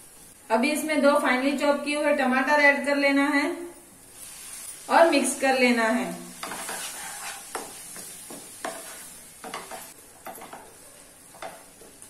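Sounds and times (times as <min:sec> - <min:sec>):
faint sizzle: 0:00.0 - 0:12.0
spatula scraping pan: 0:06.3 - 0:10.6.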